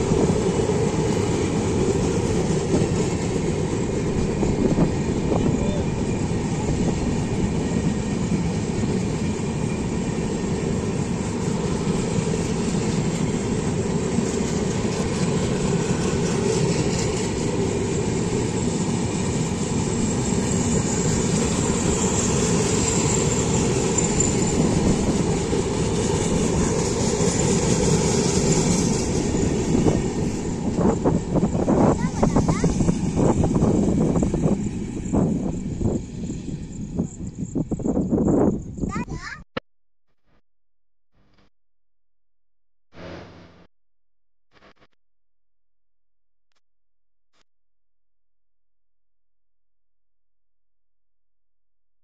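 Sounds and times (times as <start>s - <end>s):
train wheels rolling on rails: 0.0s - 38.8s.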